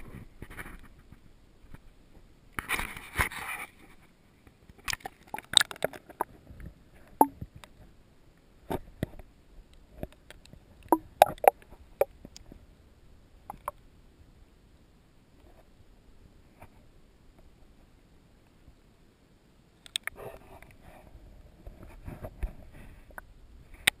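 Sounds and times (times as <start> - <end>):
sharp clicks and knocks: 10.9 - 11.6, 13.5 - 13.7
water sloshing and gurgling: 10.9 - 11.6.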